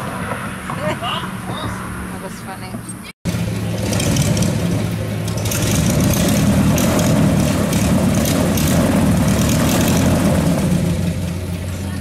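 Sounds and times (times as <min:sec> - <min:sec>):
airboat engine drone: 0:03.3 - 0:12.0.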